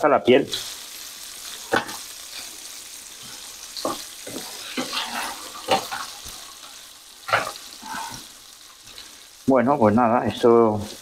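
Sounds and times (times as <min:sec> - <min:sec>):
fish sizzling in a frying pan: 0:00.0 - 0:11.0
tongs clacking against pan: 0:03.2 - 0:08.3.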